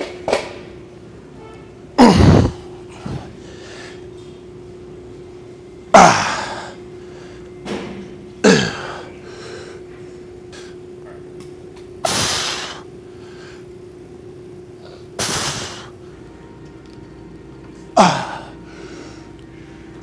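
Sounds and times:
man grunting: 2.0s - 2.7s, 6.0s - 6.7s, 8.4s - 9.0s, 18.0s - 18.6s.

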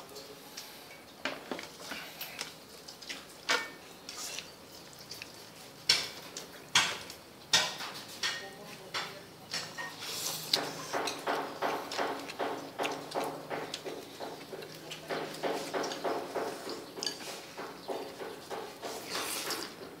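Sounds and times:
chopsticks clinking on ceramic bowls: 7.6s - 16.1s, 16.7s - 17.4s.

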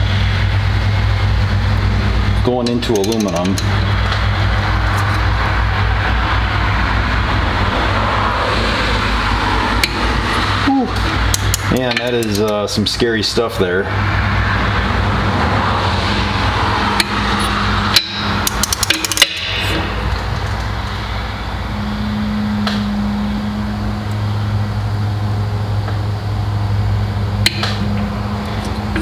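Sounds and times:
steady low hum: 0.0s - 29.0s
torque wrench clicking: 2.6s - 3.7s, 11.3s - 12.6s, 17.0s - 19.5s
ratchet ticks: 2.8s - 3.7s, 17.0s - 19.4s.

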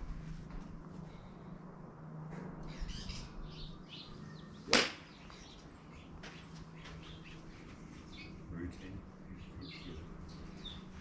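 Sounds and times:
birds chirping: 2.6s - 11.0s
golf club striking ball: 4.7s - 5.1s.

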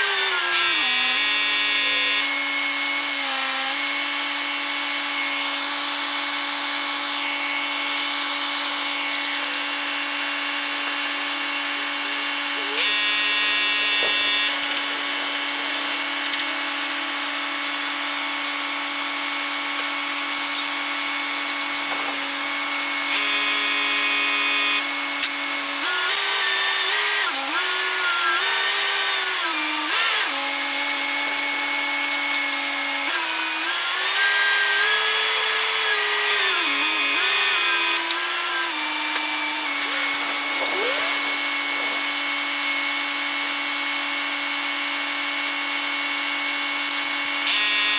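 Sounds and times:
crane mechanical whine: 12.8s - 19.0s.

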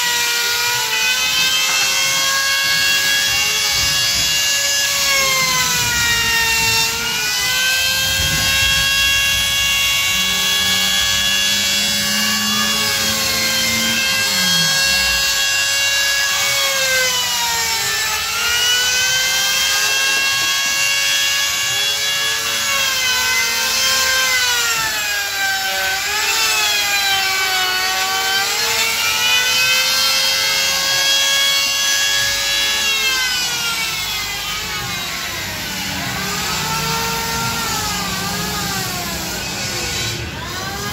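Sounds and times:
electric router whining: 0.0s - 40.9s.

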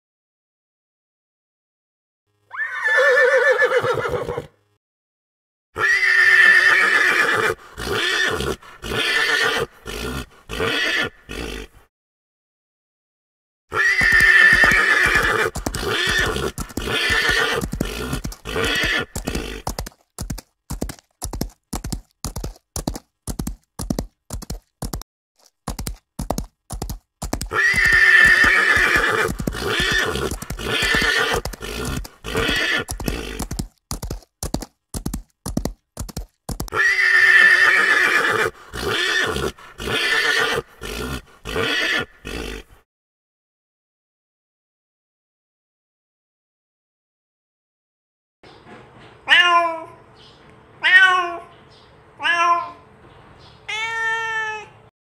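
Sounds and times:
horse whinnying: 2.5s - 4.5s, 5.8s - 11.7s, 13.7s - 20.0s, 27.2s - 33.7s, 36.6s - 42.7s
clip-clopping hoofbeats: 13.9s - 36.8s, 38.3s - 41.7s.

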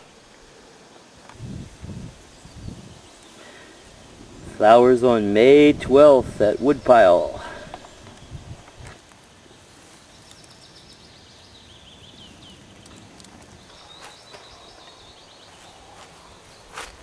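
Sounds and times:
faint background hiss: 0.0s - 17.0s
songbird singing high notes: 4.6s - 8.6s.

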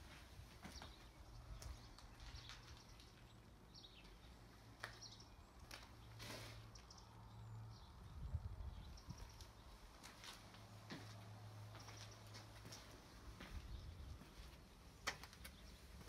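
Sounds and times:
small birds chirping: 0.6s - 16.0s
footsteps crunching on glass: 10.0s - 13.6s.

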